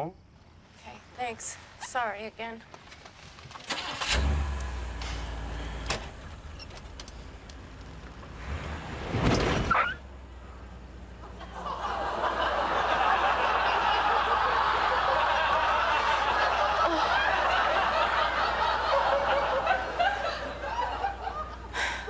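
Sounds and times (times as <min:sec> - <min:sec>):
audience laughing: 0:11.2 - 0:22.0.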